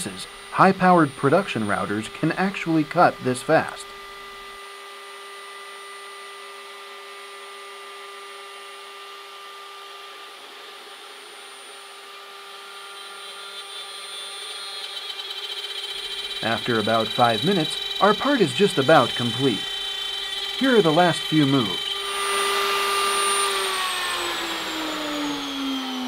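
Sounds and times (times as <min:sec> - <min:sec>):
dust collector rushing: 0:00.0 - 0:03.9, 0:15.8 - 0:26.0
router spindle whine cutting wood: 0:00.0 - 0:26.0.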